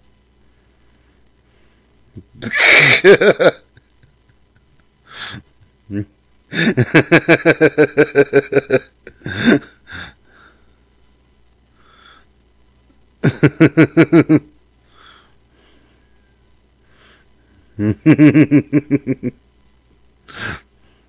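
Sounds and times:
man laughing: 2.2s - 10.1s, 13.2s - 14.5s, 17.8s - 19.4s.

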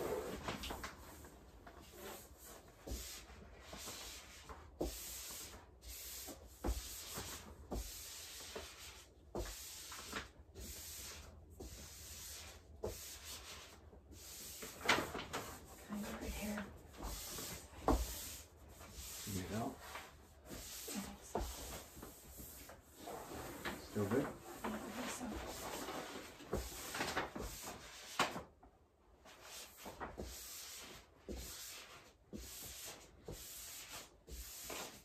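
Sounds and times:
wallpaper rubbing and rustling: 0.0s - 35.0s.

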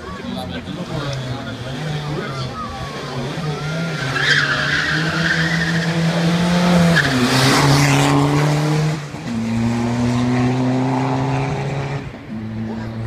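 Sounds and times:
car engine accelerating: 0.1s - 13.0s
tyres squealing: 1.1s - 7.6s.

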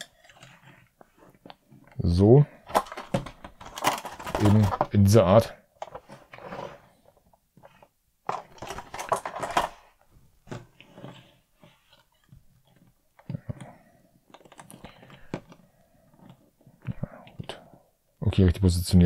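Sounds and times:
plastic packaging clicking and rattling: 2.6s - 5.1s, 8.2s - 9.9s, 14.3s - 15.6s.

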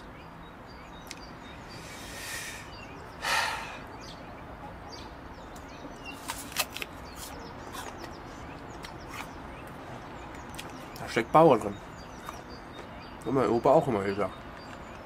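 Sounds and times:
quiet outdoor background: 0.0s - 15.0s
man breathing: 1.7s - 3.9s.

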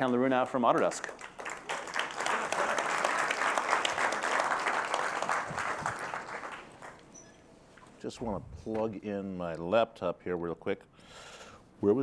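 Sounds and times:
audience applauding: 0.8s - 7.1s.

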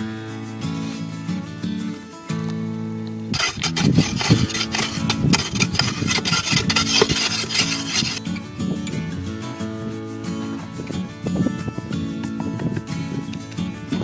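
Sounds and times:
digging tool scraping sandy soil: 3.3s - 8.2s.

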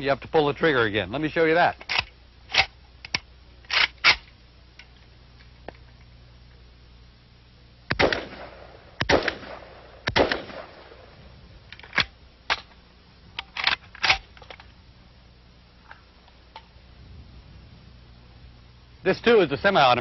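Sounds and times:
rifle shots with echo: 7.9s - 11.2s.

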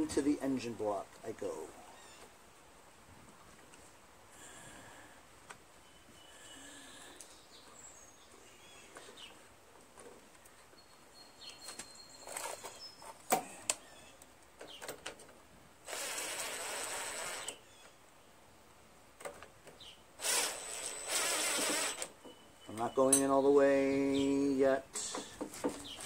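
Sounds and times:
power driver running bolts: 20.2s - 22.1s.

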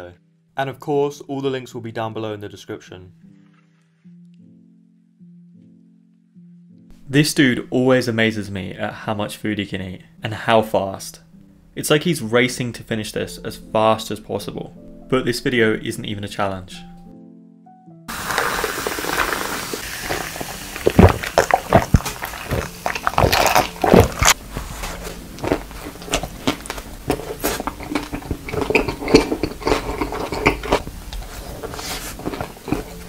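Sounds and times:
cola fizzing over ice: 18.1s - 24.4s
loud gulping: 18.1s - 24.4s
biting and wet chewing: 18.1s - 33.0s.

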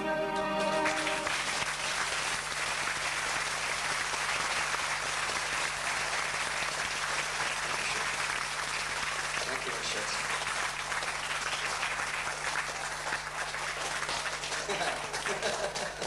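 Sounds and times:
held musical chord: 0.0s - 1.6s
audience applauding: 0.0s - 16.0s.

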